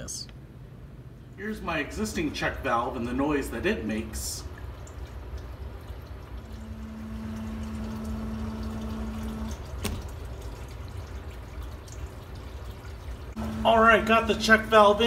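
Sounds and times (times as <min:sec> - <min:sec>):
pump humming: 0:01.4 - 0:15.0
water rushing through pipe: 0:01.9 - 0:15.0
check valve thunk: 0:06.5 - 0:10.4.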